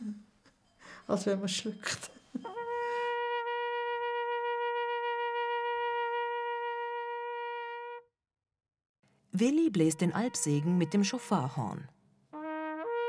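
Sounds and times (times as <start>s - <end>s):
shofar horn long note: 2.6s - 8.1s, 12.4s - 13.0s.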